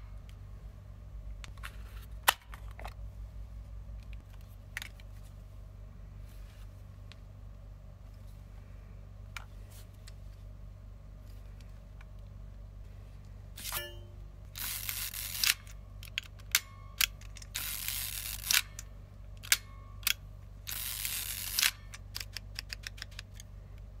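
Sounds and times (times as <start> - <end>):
camera winding noises: 14.6 - 16.4, 17.1 - 19.6, 20.7 - 23.5.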